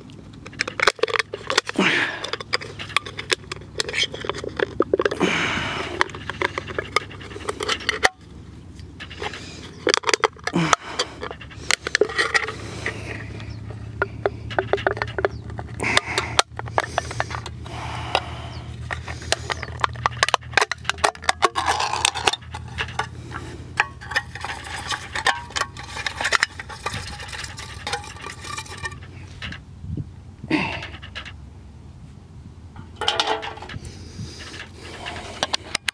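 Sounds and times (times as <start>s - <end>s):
aluminium can crackling and tearing: 0.2s - 13.4s, 18.8s - 29.6s.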